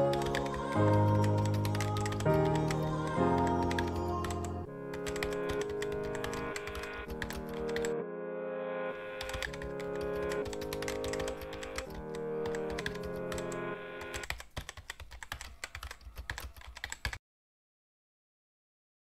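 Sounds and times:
keyboard typing clicks: 0:00.0 - 0:08.0, 0:09.2 - 0:17.2
background music of held chords: 0:00.0 - 0:14.2.

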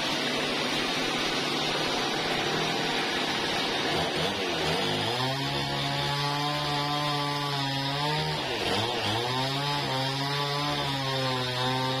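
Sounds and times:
band saw machine hum: 0:00.0 - 0:07.2.

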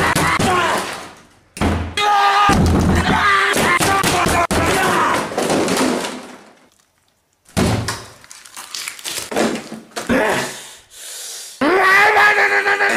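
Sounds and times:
knocks and thuds: 0:01.6 - 0:06.4.

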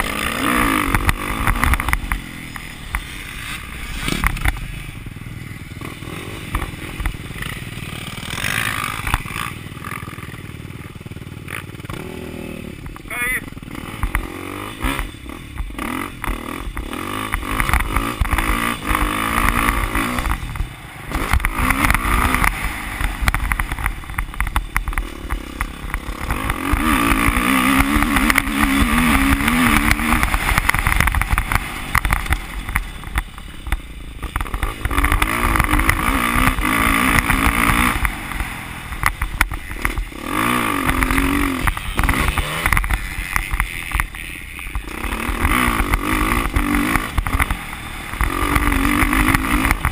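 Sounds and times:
dirt bike engine revving: 0:00.0 - 0:49.9.

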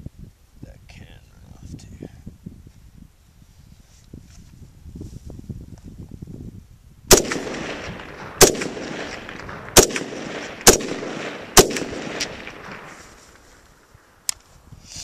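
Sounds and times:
rifle shots with echo: 0:07.1 - 0:13.7.

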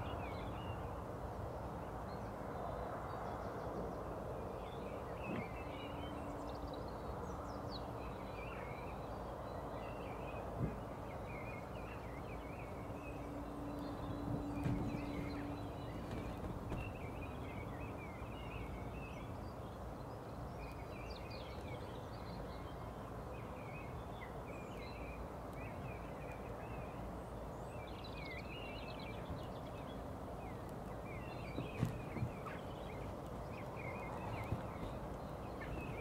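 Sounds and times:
rural ambience hiss: 0:00.0 - 0:36.0
songbirds chirping: 0:00.0 - 0:36.0
short thumps: 0:14.2 - 0:17.5, 0:31.5 - 0:32.6.

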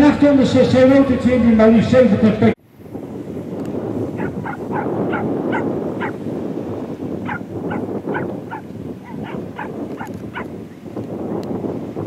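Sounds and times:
animal yelping: 0:04.1 - 0:06.2, 0:07.2 - 0:10.6
steady rushing background: 0:04.2 - 0:06.2.

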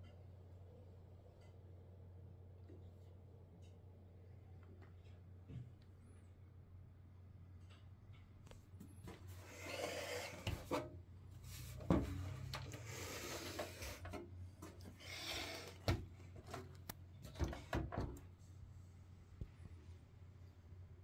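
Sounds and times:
box rubbing and scraping: 0:09.3 - 0:10.8.

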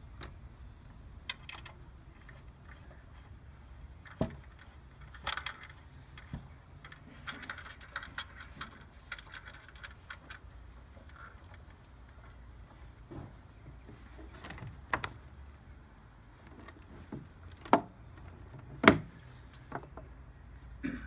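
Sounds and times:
metal cable connectors clicking: 0:00.2 - 0:03.1, 0:04.0 - 0:11.8, 0:19.3 - 0:20.0.

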